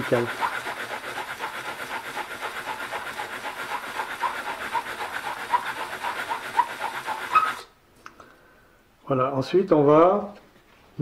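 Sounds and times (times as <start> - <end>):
scraper rubbing on abrasive paper: 0.0 - 7.7.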